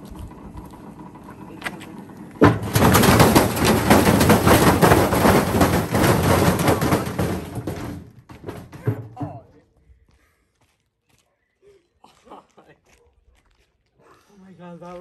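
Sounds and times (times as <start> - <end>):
washing machine banging and rattling: 2.4 - 9.4.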